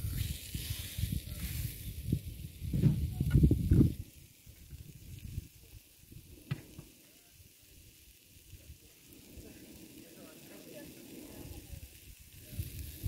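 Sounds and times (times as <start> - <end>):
wind buffeting microphone: 0.0 - 6.6, 11.3 - 13.0
faint hiss: 0.0 - 13.0.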